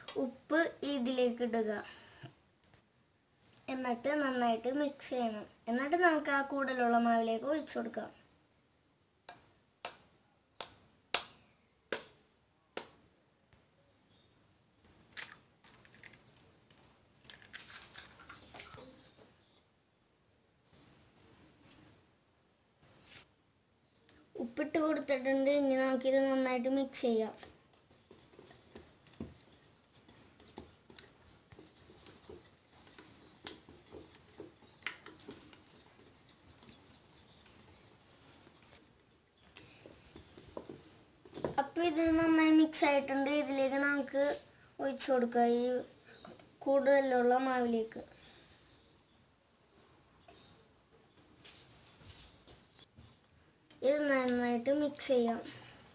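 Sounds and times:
eggshell crackling: 0:14.9 - 0:18.8, 0:27.3 - 0:41.5.

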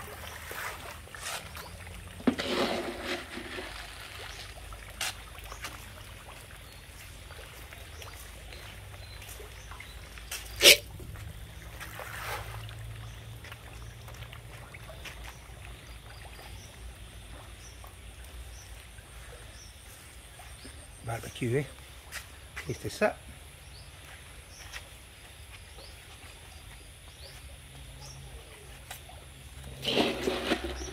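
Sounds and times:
fish splashing: 0:00.0 - 0:20.8, 0:28.6 - 0:30.9.

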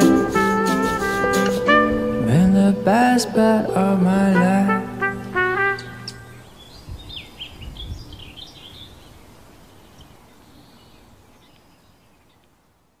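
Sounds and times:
faint outdoor background noise: 0:00.0 - 0:13.0
small birds chirping: 0:05.8 - 0:12.7.

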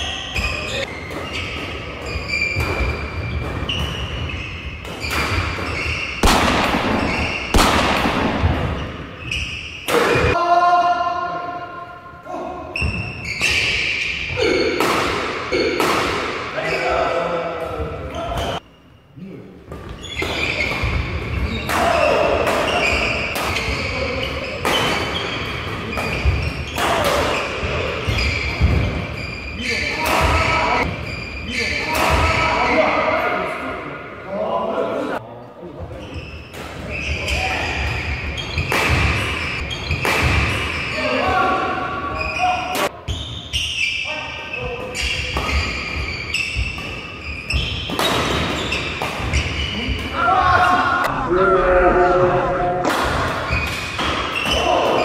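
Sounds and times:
court shoes squeaking: 0:00.0 - 0:10.4, 0:12.7 - 0:33.6, 0:35.8 - 0:51.1, 0:53.1 - 0:55.0
rackets hitting shuttlecock: 0:00.4 - 0:10.4, 0:12.8 - 0:16.6, 0:19.7 - 0:29.2, 0:36.5 - 0:41.0, 0:44.8 - 0:50.2, 0:52.8 - 0:55.0
rackets striking shuttlecock: 0:38.4 - 0:40.8.

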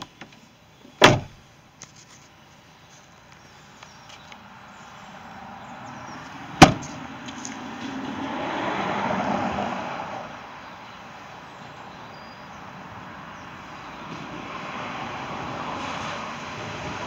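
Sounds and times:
car doors slamming: 0:01.0 - 0:01.4, 0:06.6 - 0:07.0.

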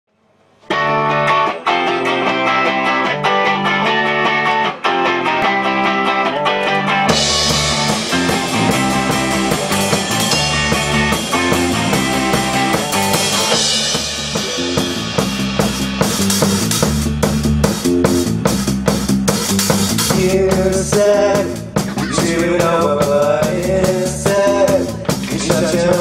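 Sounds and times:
bass guitar: 0:00.6 - 0:26.0
electric guitar riff: 0:00.6 - 0:26.0
drum kit with cymbals: 0:06.5 - 0:26.0.

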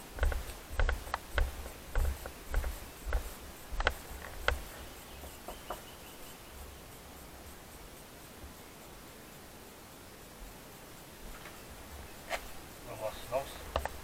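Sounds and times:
footsteps on hard path: 0:00.0 - 0:06.0.

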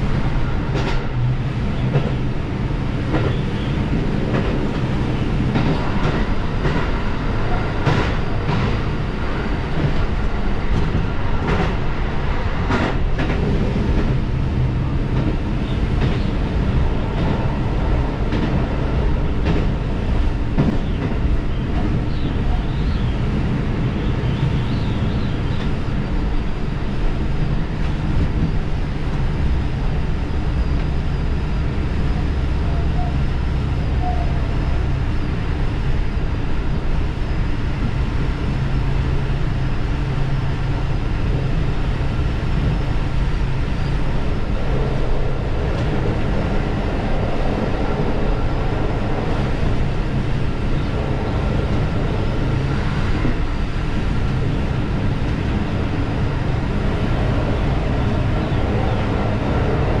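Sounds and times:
wheels rumbling on rails: 0:00.0 - 1:00.0.

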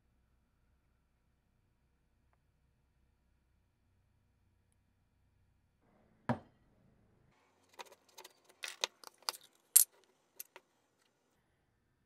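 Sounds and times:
tin lid clicking and clinking: 0:07.8 - 0:09.5.

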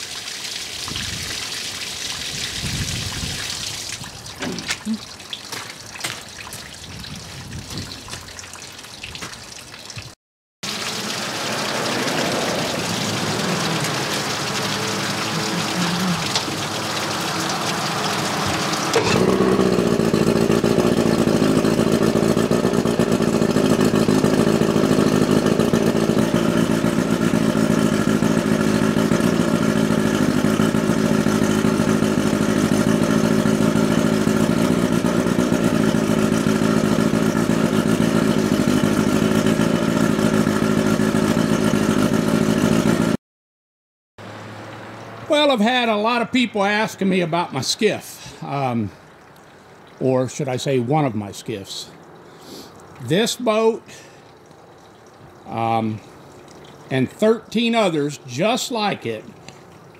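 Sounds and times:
outboard motor idling: 0:10.6 - 0:43.2, 0:52.0 - 0:59.9.

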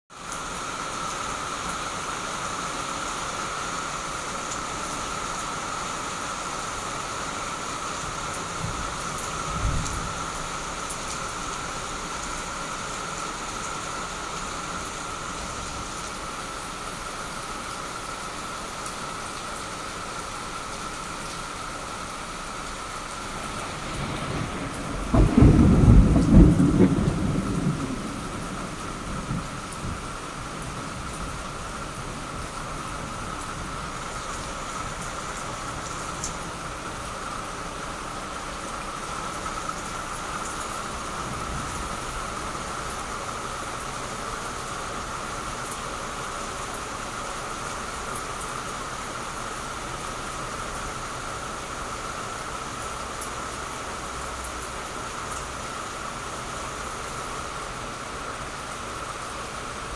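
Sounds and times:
heavy rain hissing: 0:00.1 - 0:59.9
thunder rumbling: 0:08.6 - 0:10.4, 0:23.2 - 0:32.7.

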